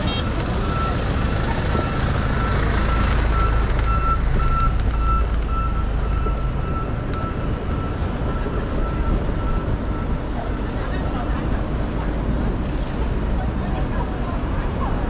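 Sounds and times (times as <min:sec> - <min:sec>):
reversing alarm beeping: 0:00.0 - 0:10.7
street traffic rumble: 0:00.0 - 0:15.0.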